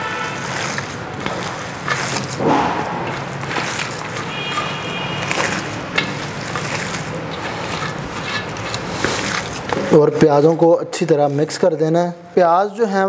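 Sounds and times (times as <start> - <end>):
meat squelching by hand: 0.0 - 12.0.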